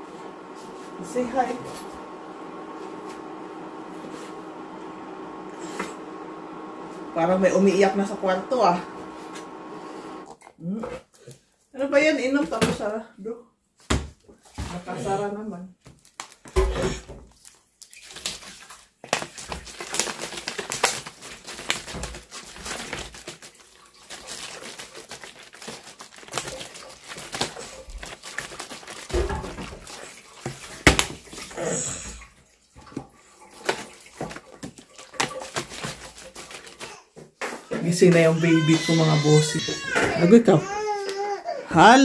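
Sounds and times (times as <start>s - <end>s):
water running at sink: 0.0s - 10.3s, 18.0s - 36.9s, 37.8s - 40.6s
plastic bottle crinkling: 15.9s - 31.6s, 32.9s - 37.0s.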